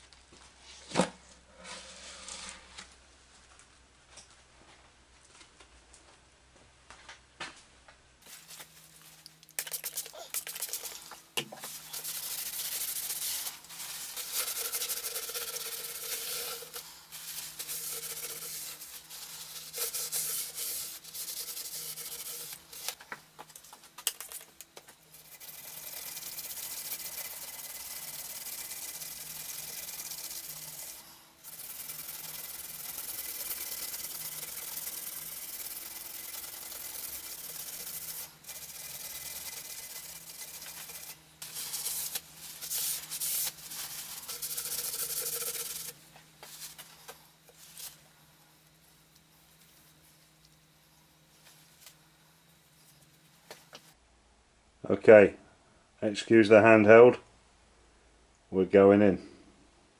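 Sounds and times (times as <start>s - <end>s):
abrasive pad scrubbing metal: 9.8s - 23.0s, 25.0s - 48.1s.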